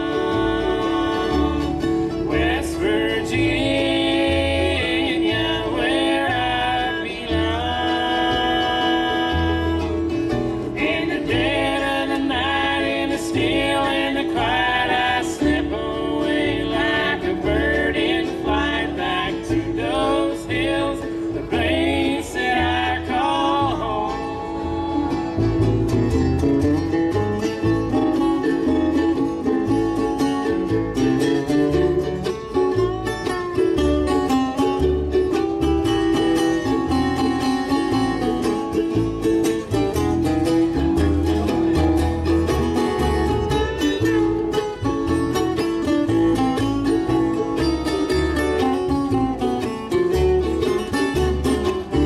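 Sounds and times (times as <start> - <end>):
men singing harmony: 0.0 - 25.4
woman singing lead: 0.0 - 25.7
acoustic guitar: 0.0 - 52.0
fiddle: 0.0 - 52.0
mandolin: 0.0 - 52.0
upright bass: 0.0 - 52.0.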